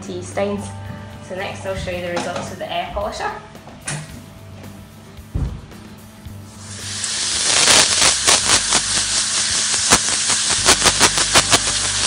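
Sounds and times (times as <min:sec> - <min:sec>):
air polisher hissing: 0:06.4 - 0:12.0.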